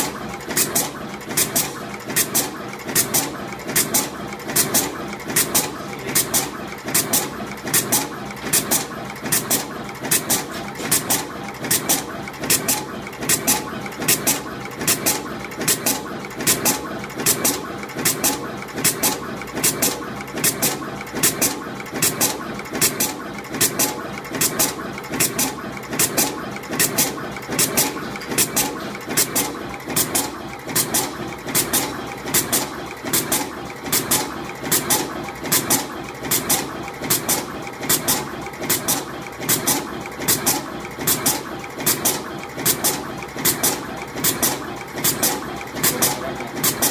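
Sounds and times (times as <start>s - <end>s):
machine sharp clicks: 0.0s - 46.9s
steady mechanical hum: 0.0s - 46.9s.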